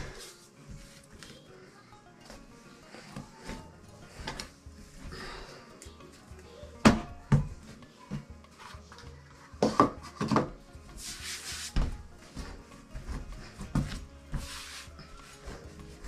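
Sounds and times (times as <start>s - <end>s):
background music: 0.0s - 16.0s
hands kneading dough on table: 10.9s - 16.0s
dough rubbing hiss: 11.0s - 11.8s, 14.3s - 15.4s.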